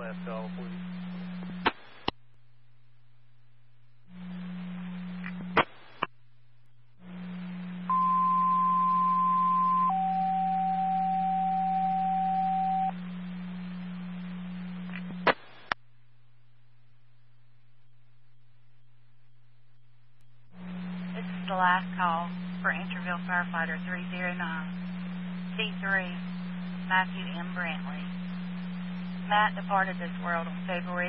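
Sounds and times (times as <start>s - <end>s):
two-tone radio page: 0.0s - 2.1s, 7.0s - 15.7s, 20.6s - 31.0s
radio static hiss: 0.0s - 2.2s, 4.1s - 6.1s, 7.0s - 8.0s, 12.8s - 15.8s, 20.5s - 31.0s.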